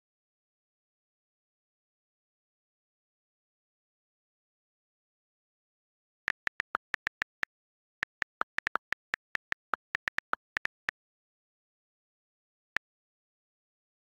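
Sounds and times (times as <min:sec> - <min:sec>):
on-screen keyboard clicks: 0:06.3 - 0:10.9.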